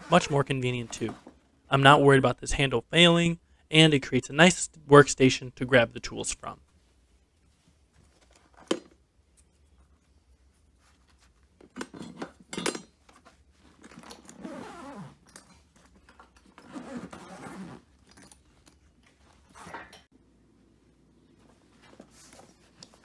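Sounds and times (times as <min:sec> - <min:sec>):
backpack fabric rustling: 0:13.0 - 0:19.8, 0:21.3 - 0:23.0.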